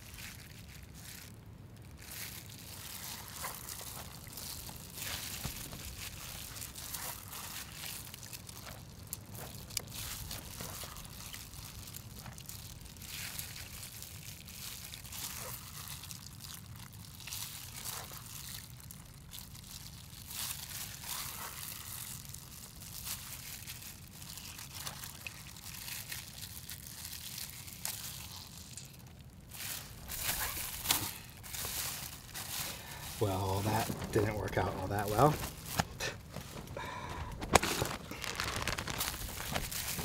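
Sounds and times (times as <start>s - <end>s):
rustling and crinkling of gear: 0.0s - 40.0s
steady low hum: 29.4s - 40.0s.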